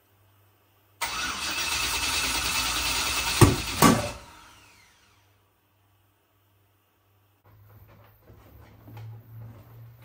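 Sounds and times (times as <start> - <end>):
engine cranking on starter: 1.0 - 4.9.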